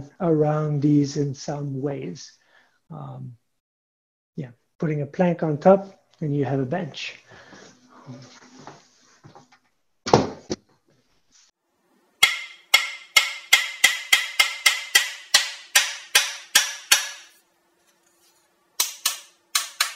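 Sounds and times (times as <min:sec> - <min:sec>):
wooden percussion strikes: 0:12.2 - 0:17.3.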